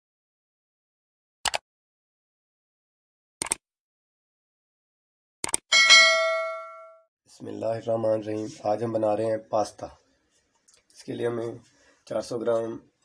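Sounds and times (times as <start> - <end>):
bright bell ding: 5.7 - 7.0.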